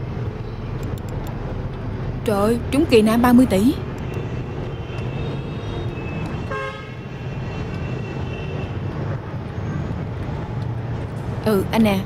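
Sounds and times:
traffic rumble: 0.0s - 12.0s
car horn toot: 4.0s - 8.8s.

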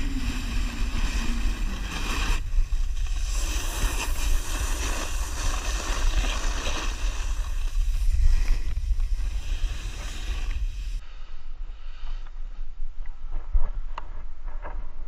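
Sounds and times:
snowboard sliding over packed snow: 0.0s - 11.0s
wind buffeting camera: 0.0s - 11.0s, 12.3s - 15.0s.

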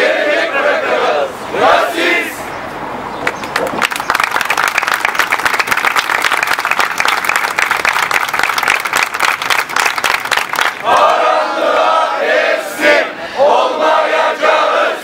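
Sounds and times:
crowd applauding: 3.2s - 11.2s.

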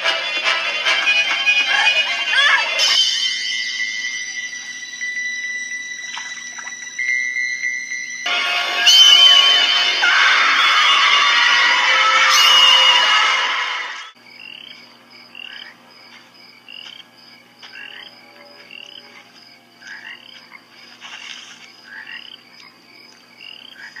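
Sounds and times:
high-pitched drone: 2.8s - 14.2s
frogs peeping: 2.9s - 8.3s, 14.2s - 24.0s
loud scream: 8.3s - 14.2s.

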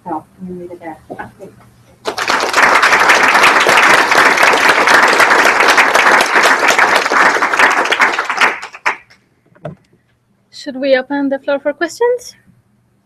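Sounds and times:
audience applauding: 2.0s - 9.2s.

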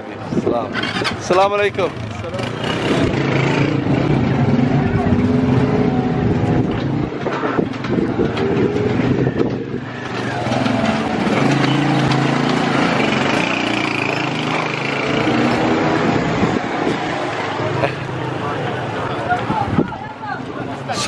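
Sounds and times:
scooter engine running: 0.8s - 18.9s.

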